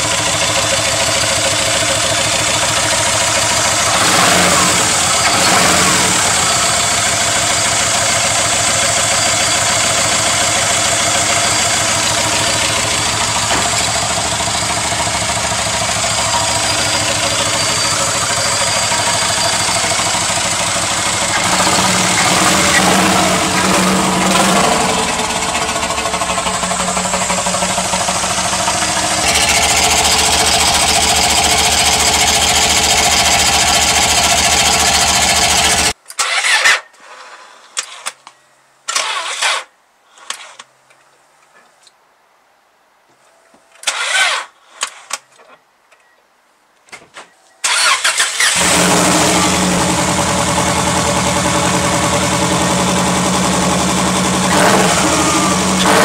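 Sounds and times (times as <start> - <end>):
car engine running: 0.0 - 35.9, 48.5 - 56.0.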